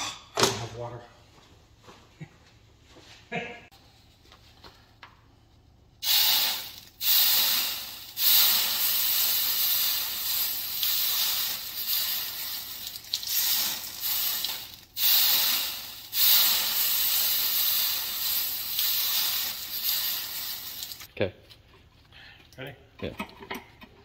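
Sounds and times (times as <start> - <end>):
water sizzling on hot metal: 6.0 - 21.1.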